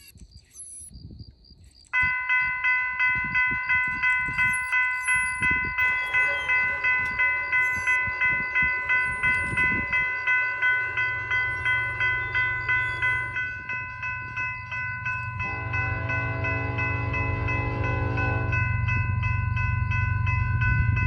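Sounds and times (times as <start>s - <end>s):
freight train rumble: 2.0s - 21.0s
railroad crossing bell ringing: 2.0s - 21.0s
locomotive air horn: 5.8s - 14.2s, 15.2s - 18.9s.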